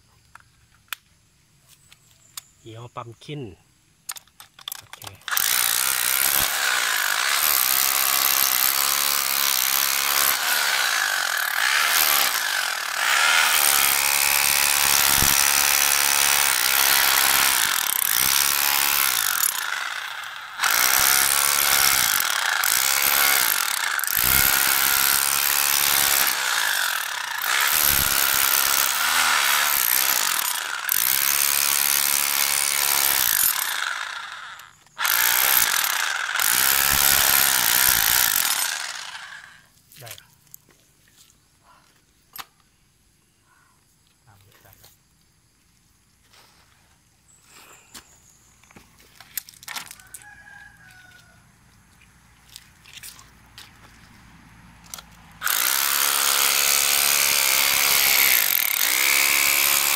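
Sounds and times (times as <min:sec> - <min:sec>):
rotary hammer chiselling concrete: 0:05.3 - 0:39.5, 0:55.4 - 0:59.9.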